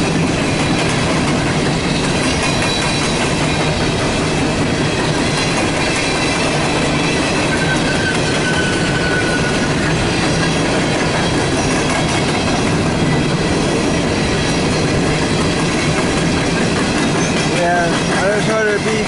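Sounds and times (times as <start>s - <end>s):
train wheels rumbling and clattering: 0.0s - 19.0s
faint high squeal: 7.6s - 9.7s.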